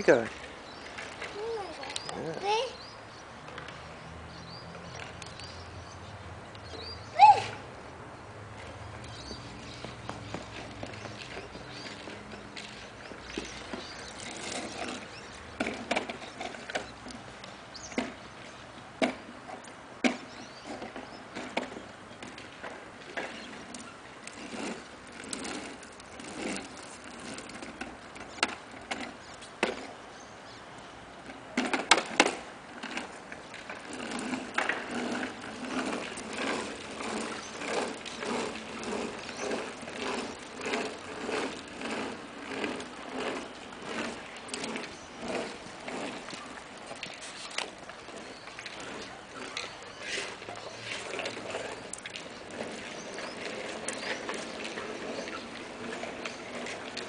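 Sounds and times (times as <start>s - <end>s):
plastic wheels rolling on concrete: 0.0s - 57.0s.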